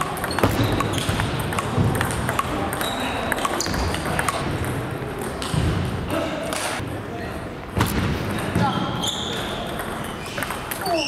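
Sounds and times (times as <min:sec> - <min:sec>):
busy sports hall noise: 0:00.0 - 0:11.0
brief high squeaks: 0:08.6 - 0:09.6.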